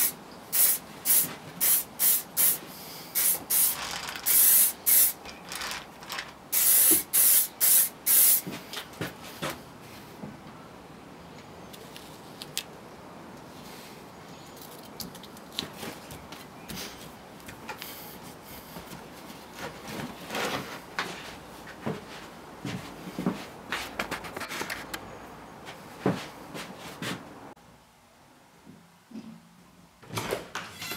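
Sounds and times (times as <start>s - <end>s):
aerosol spray hissing: 0.0s - 5.2s, 6.5s - 8.5s.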